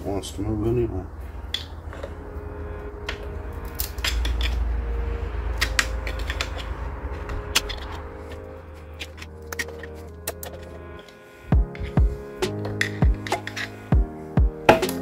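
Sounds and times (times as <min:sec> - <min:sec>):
screwdriver scraping metal: 0:07.5 - 0:13.8.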